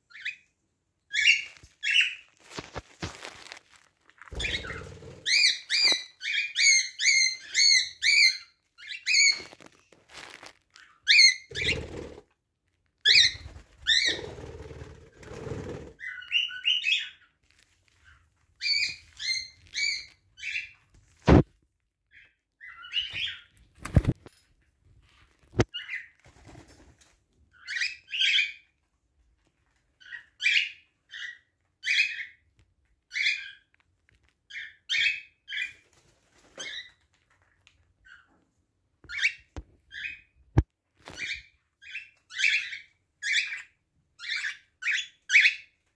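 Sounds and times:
parrots chirping: 1.1 - 2.3, 4.3 - 9.6, 10.8 - 11.9, 13.0 - 14.3, 16.0 - 17.3.

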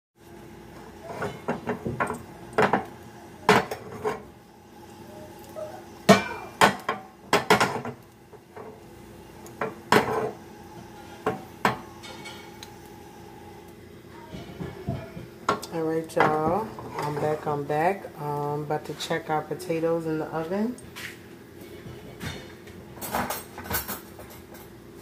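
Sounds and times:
utensil scraping in a skillet: 0.8 - 1.9, 16.4 - 17.9
pan clattering on stove grate: 6.1 - 8.0.

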